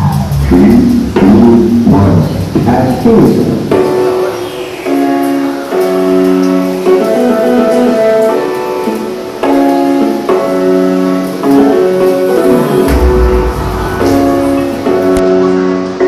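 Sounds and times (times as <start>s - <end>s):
music with sustained chords: 3.7s - 16.0s
deep bass note: 12.6s - 15.8s.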